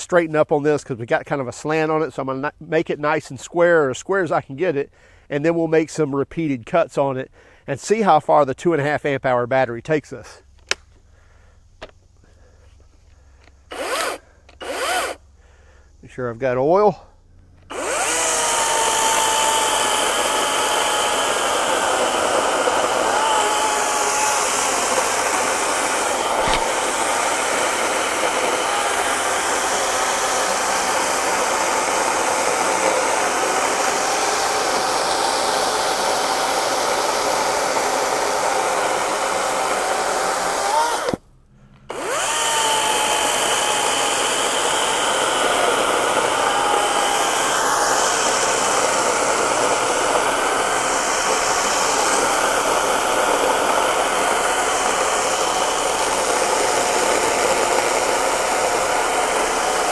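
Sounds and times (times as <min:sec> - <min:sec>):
chainsaw motor whine: 0:13.4 - 0:15.7, 0:17.4 - 0:41.2, 0:41.8 - 0:59.9
chain rasping through wood: 0:17.7 - 0:41.2.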